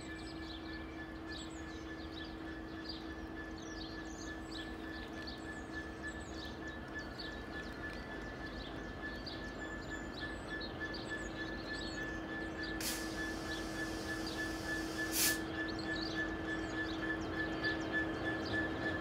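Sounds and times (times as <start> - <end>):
diesel locomotive engine drone: 0.0 - 19.0
short air hisses: 12.8 - 15.4.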